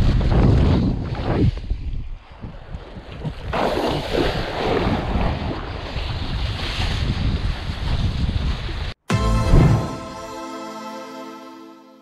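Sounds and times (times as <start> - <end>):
wind buffeting microphone: 0.0 - 9.0.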